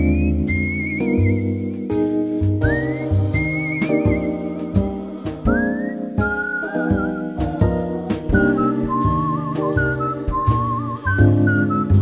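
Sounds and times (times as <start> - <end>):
steady beat: 0.0 - 12.0
whistled melody: 0.0 - 12.0
sustained chords: 2.6 - 12.0.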